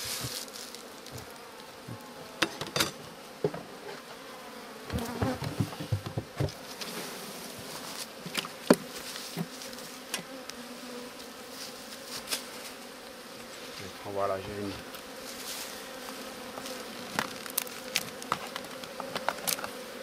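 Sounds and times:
honeybees buzzing: 0.0s - 20.0s
knocks on can and hive wood: 4.9s - 6.6s, 8.3s - 9.5s, 17.1s - 19.8s.

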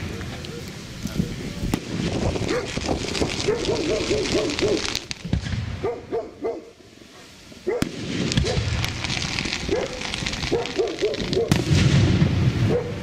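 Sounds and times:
fireworks bangs and crackle: 0.0s - 5.9s, 6.9s - 13.0s
dog barking: 2.5s - 2.8s, 3.4s - 4.9s, 5.8s - 6.8s, 7.6s - 8.7s, 9.7s - 11.5s, 12.7s - 13.0s.

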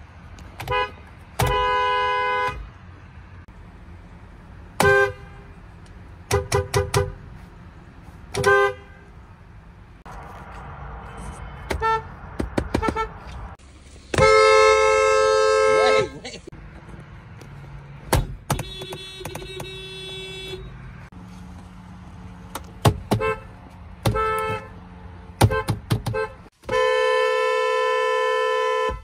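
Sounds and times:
dual-tone car horn beeps: 4.8s - 5.5s, 6.3s - 7.2s, 8.4s - 9.1s, 11.0s - 12.1s, 14.1s - 16.3s, 18.6s - 20.8s, 24.1s - 24.8s, 25.4s - 29.0s.

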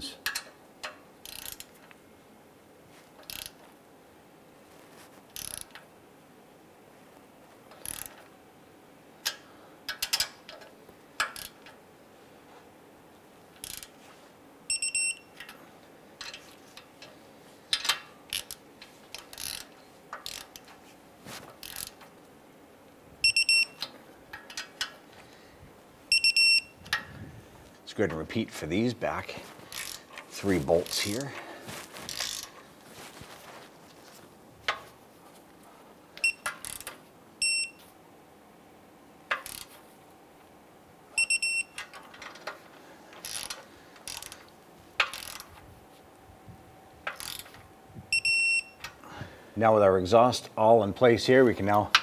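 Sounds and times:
torque wrench ratchet clicks: 1.2s - 1.8s, 3.2s - 3.6s, 5.4s - 5.8s, 7.7s - 8.2s, 11.2s - 11.6s, 13.6s - 13.9s, 17.8s - 20.7s, 21.6s - 22.0s, 29.7s - 30.0s, 36.4s - 37.0s, 39.3s - 39.7s, 43.2s - 44.4s, 45.0s - 45.5s, 47.1s - 47.5s
torque wrench beeping: 14.7s - 15.5s, 23.2s - 23.9s, 26.1s - 26.8s, 36.2s - 37.8s, 41.2s - 41.9s, 48.1s - 48.9s.

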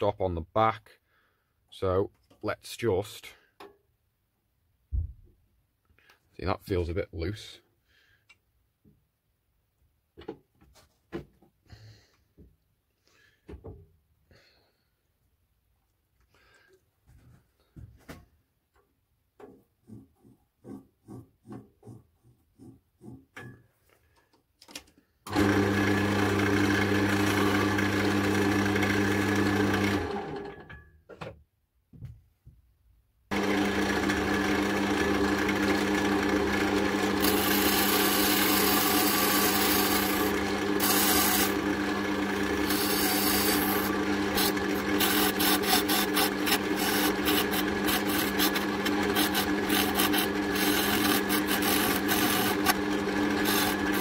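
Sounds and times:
chisel scraping spinning wood: 19.8s - 23.4s, 33.4s - 54.0s
lathe motor humming: 25.3s - 30.6s, 33.3s - 54.0s.

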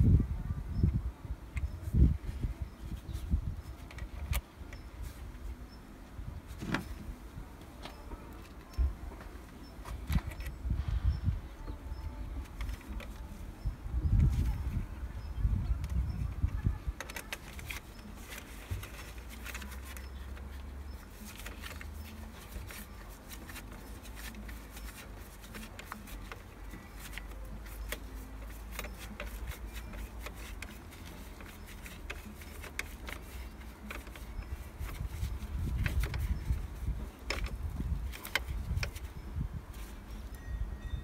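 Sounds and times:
tools clicking and tapping: 15.8s - 39.1s.

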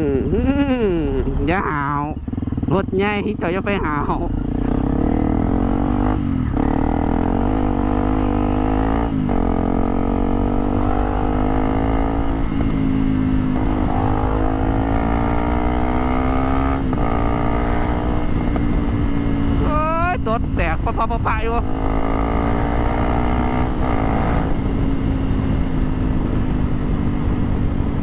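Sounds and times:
motorcycle engine shifting gears: 1.0s - 19.8s, 21.6s - 28.0s.

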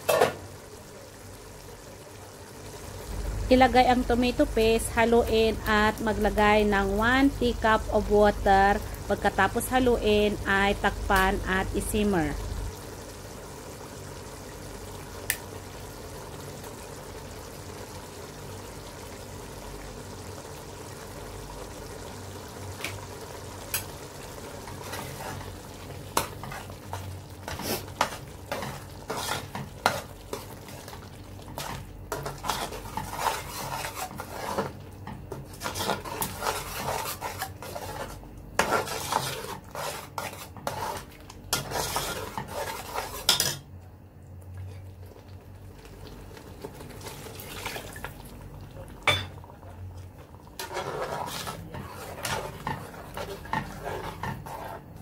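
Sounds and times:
sauce sizzling in pot: 0.0s - 43.7s, 44.8s - 49.6s, 50.2s - 55.0s
spoon scraping a metal pot: 27.5s - 30.0s, 31.6s - 34.7s, 35.6s - 43.6s, 50.6s - 54.8s.

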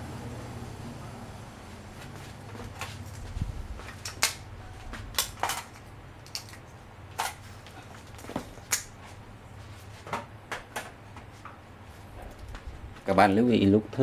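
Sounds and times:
low hum: 0.0s - 7.1s
clicks and knocks of small parts: 5.1s - 8.9s.

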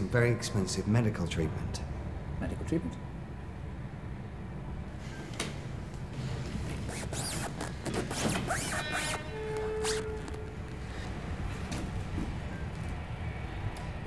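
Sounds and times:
clothing rustling: 6.2s - 12.3s
held note of film score: 8.3s - 11.4s.

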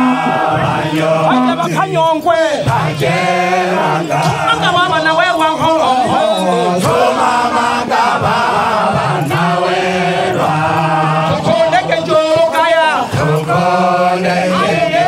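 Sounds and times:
man chanting into microphone: 0.0s - 7.2s, 10.6s - 15.0s.

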